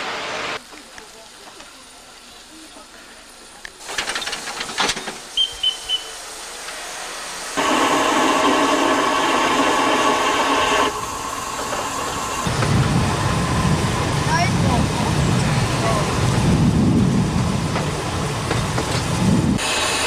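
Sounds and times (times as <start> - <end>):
low rumble of train running: 0.0 - 20.0
steam locomotive whistle: 5.4 - 6.2.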